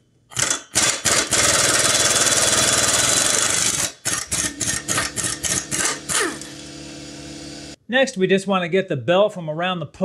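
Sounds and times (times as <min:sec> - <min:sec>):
impact wrench hammering: 0:00.3 - 0:06.6.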